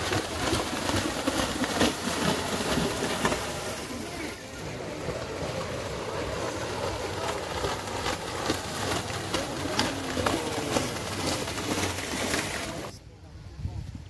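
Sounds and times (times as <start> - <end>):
wind noise on microphone: 9.7 - 14.0.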